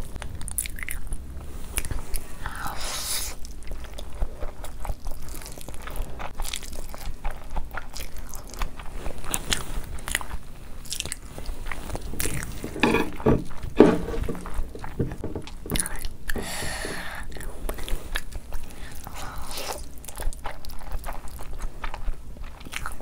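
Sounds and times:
chewing with wet mouth clicks: 0.1s - 2.0s, 3.4s - 12.6s, 17.3s - 23.0s.

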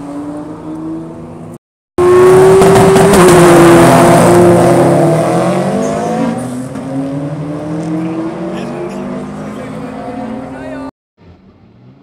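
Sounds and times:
racing car engines accelerating: 0.0s - 12.0s.

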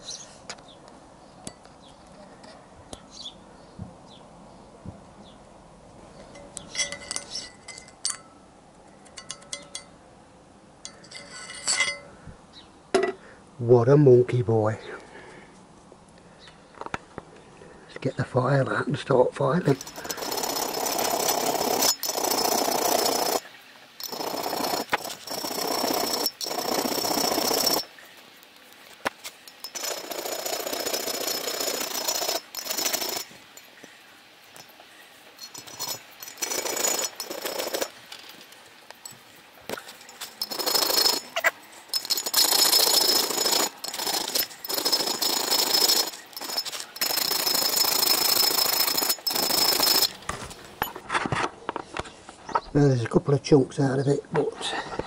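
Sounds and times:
file rasping on steel: 19.7s - 23.4s, 24.0s - 27.8s.

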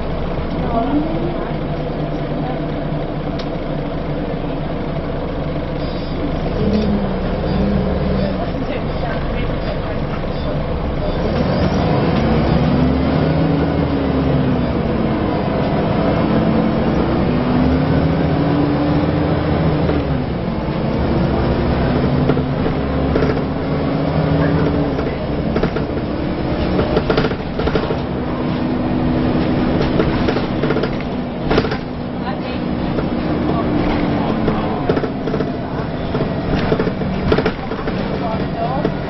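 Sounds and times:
bus engine and gearbox pulling: 0.0s - 39.0s
road noise: 0.0s - 39.0s
sharp knocks: 29.8s - 32.0s.

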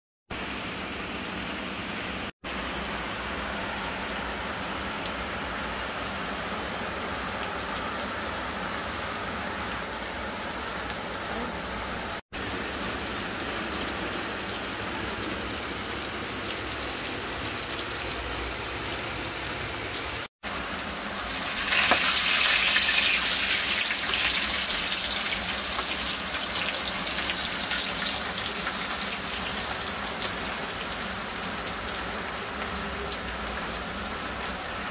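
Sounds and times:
fish sizzling in hot oil: 12.0s - 34.9s.

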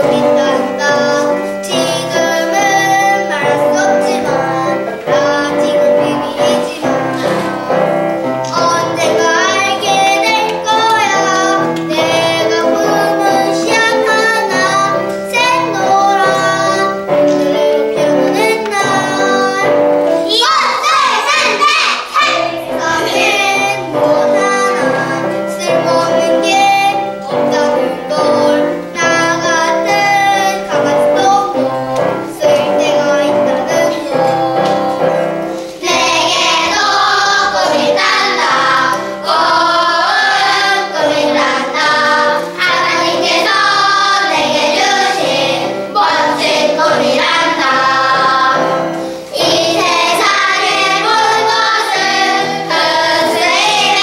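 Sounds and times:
children singing in chorus: 0.0s - 54.0s.

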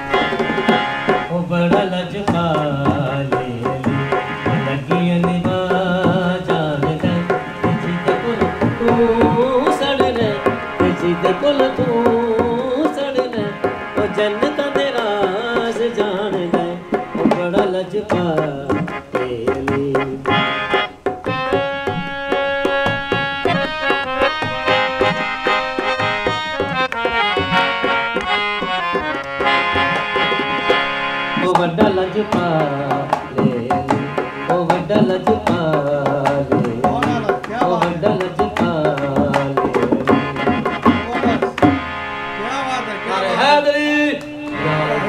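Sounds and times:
barrel drum beat: 0.0s - 41.9s
harmonium playing: 0.0s - 45.0s
man singing: 1.1s - 20.8s, 31.4s - 41.7s, 42.9s - 45.0s.

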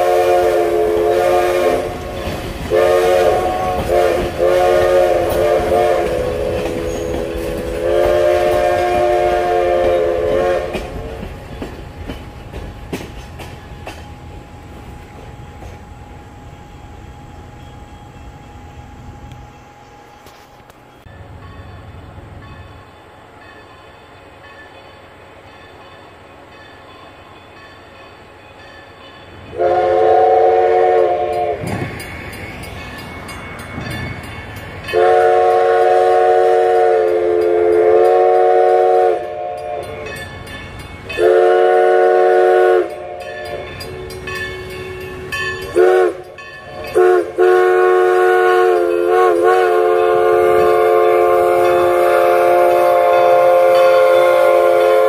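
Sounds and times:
steam locomotive whistle blasts: 0.0s - 11.5s, 29.4s - 32.1s, 34.8s - 40.3s, 41.1s - 55.0s.

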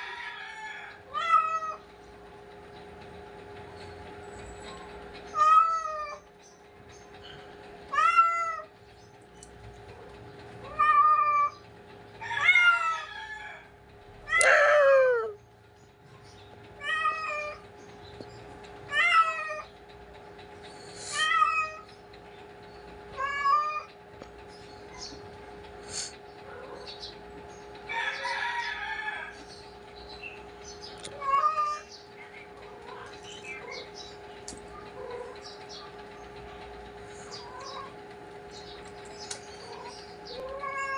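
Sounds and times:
cat meowing: 40.4s - 40.9s.

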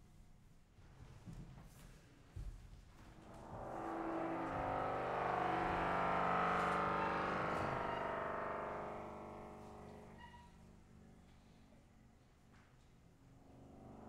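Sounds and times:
saxophones sustained tones: 3.1s - 10.8s.

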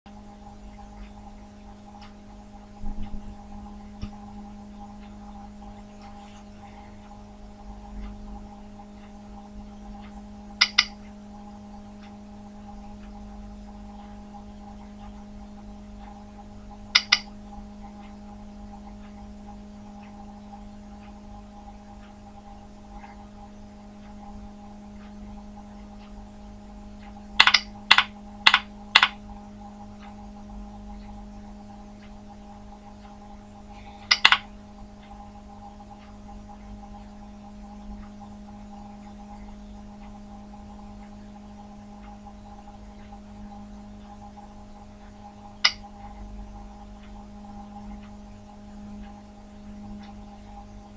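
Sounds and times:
steady hum: 0.1s - 50.9s
mouse button clicks: 10.6s - 10.9s, 17.0s - 17.2s, 34.1s - 34.4s.

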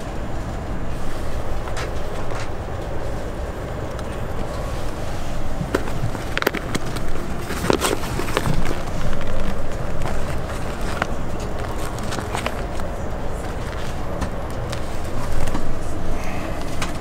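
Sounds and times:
airplane cabin rumble: 0.0s - 17.0s
plastic wrapper crinkling: 5.7s - 14.0s.

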